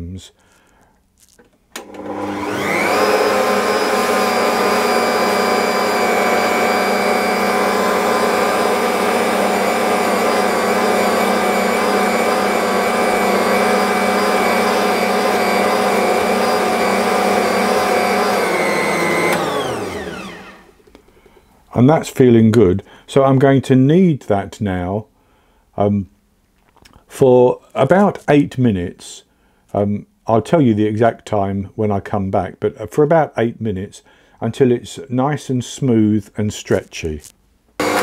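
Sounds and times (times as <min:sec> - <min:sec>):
stand mixer motor whine: 0:01.8 - 0:20.7, 0:37.8 - 0:38.0.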